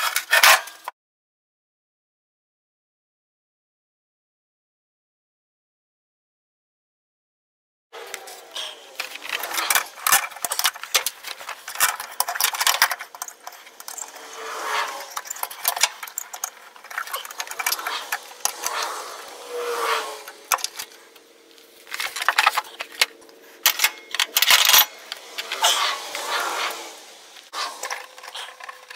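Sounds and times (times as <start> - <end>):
metal rods clinking and scraping: 0.0 - 0.9, 8.1 - 28.9.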